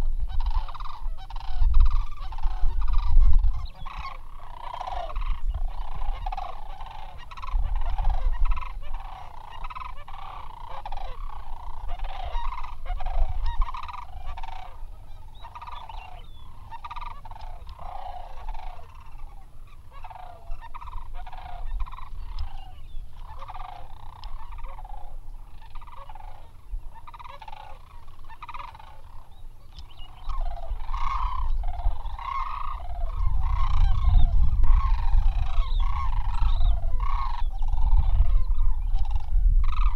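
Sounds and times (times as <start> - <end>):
cranes calling: 0.0 - 39.9
wind rumble on microphone: 0.0 - 39.9.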